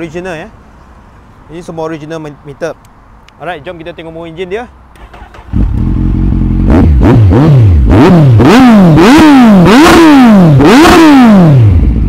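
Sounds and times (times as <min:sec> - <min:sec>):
motorcycle engine revving: 0:05.0 - 0:12.0.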